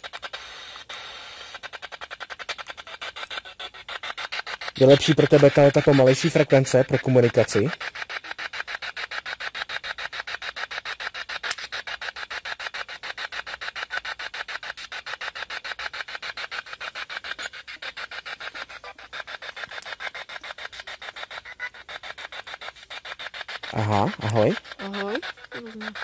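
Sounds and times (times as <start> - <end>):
chopped radio static bursts: 3.8 - 12.0, 13.9 - 26.0.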